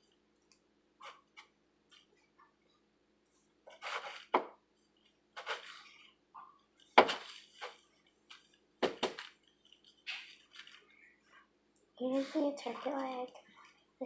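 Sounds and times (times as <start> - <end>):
cereal treat mixture crunching: 6.8 - 11.0.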